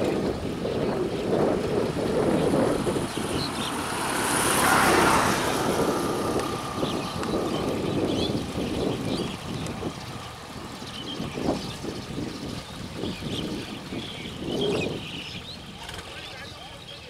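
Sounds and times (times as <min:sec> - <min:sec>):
tractor diesel engine running: 0:01.3 - 0:10.8.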